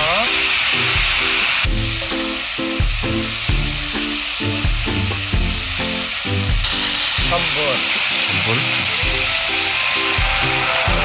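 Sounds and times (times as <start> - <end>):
food sizzling in frying pan: 0.0 - 11.0.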